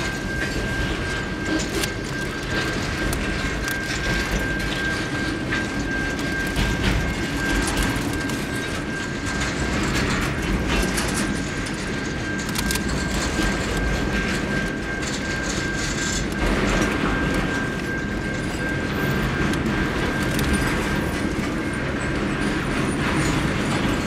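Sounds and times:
high-pitched whine: 0.0s - 24.0s
train wheels rumbling on rail: 0.0s - 24.0s
wheels clacking over rail joints: 0.0s - 24.0s.

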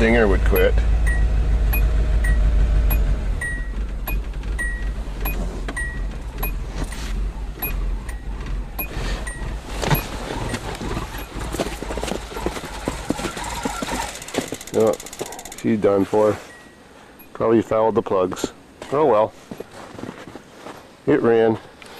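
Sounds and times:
car warning chime dinging: 0.0s - 12.9s, 14.6s - 18.1s
car engine chugging: 0.0s - 17.8s.

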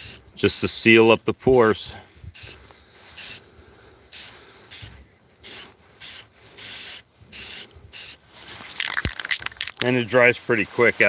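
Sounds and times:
aerosol spray paint hissing: 2.4s - 3.4s, 4.1s - 9.9s.

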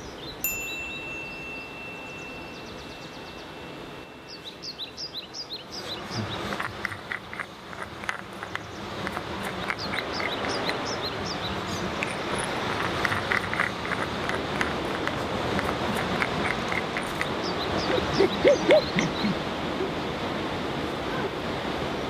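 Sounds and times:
small birds chirping: 0.0s - 20.2s
steady rushing noise: 5.5s - 22.0s.

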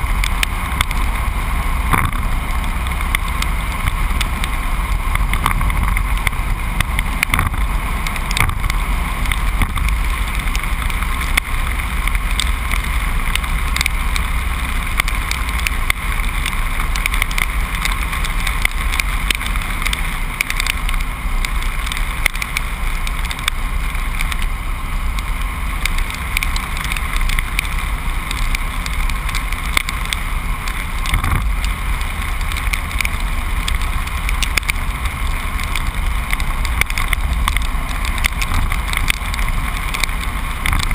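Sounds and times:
truck engine and road rumble: 0.0s - 40.9s
faint ticks: 0.1s - 1.1s, 1.9s - 24.5s, 25.1s - 40.9s.

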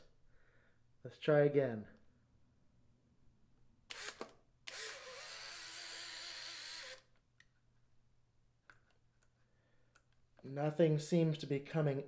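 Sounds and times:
camera shutter clicks: 3.9s - 7.0s
camera motor whirring: 3.9s - 7.1s.

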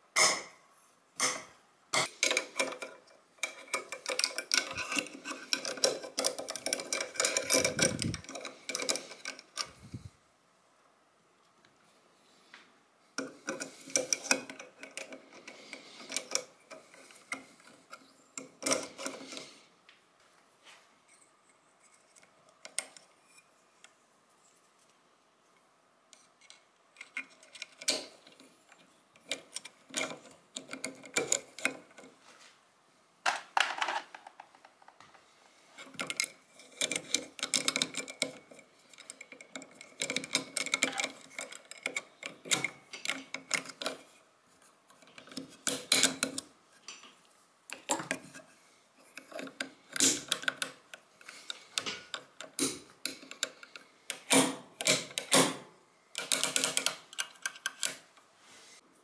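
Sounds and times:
metallic clicks and taps: 56.1s - 58.0s.

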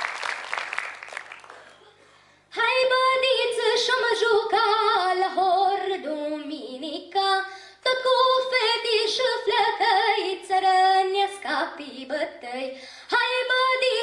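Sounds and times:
girl singing unaccompanied: 2.5s - 14.0s.

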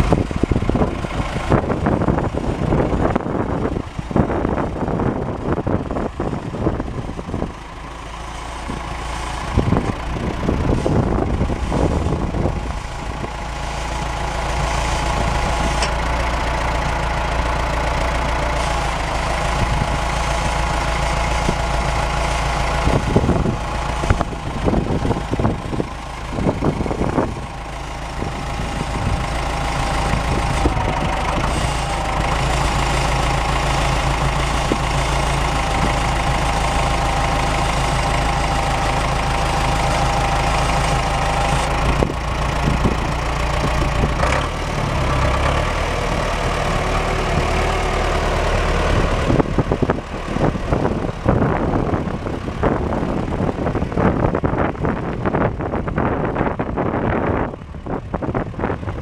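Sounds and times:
tractor diesel engine running: 0.0s - 59.0s
wind buffeting microphone: 0.0s - 59.0s.

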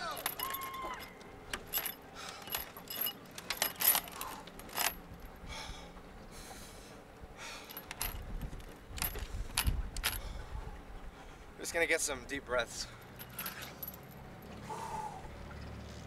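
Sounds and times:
chains and padlocks clinking: 0.0s - 5.3s, 7.6s - 10.2s, 12.9s - 14.4s
person breathing: 14.6s - 15.3s.

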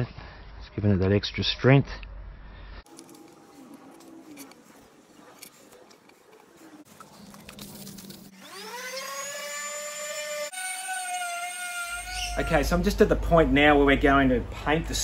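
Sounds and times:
electric orbital sander whining: 7.8s - 12.5s.

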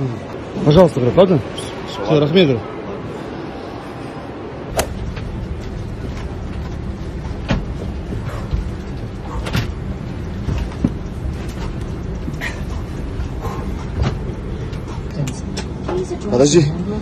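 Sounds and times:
airliner cabin rumble: 2.7s - 16.3s.

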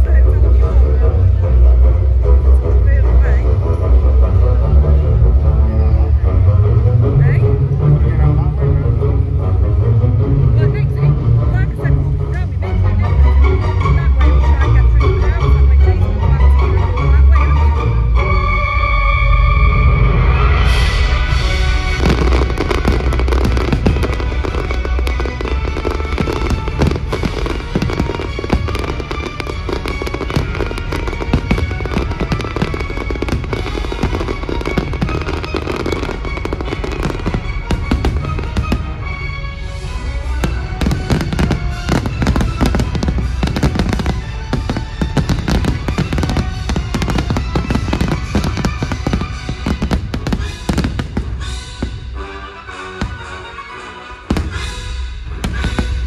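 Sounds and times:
loud show music: 0.0s - 56.0s
fireworks bursting and crackling: 20.5s - 53.6s, 54.2s - 56.0s.

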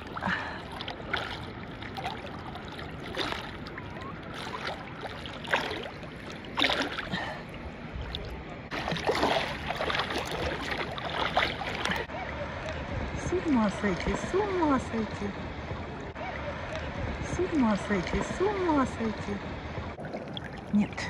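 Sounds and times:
brief water splashes: 0.0s - 7.4s, 8.0s - 12.1s
water sloshing: 0.0s - 12.4s, 13.7s - 21.0s.

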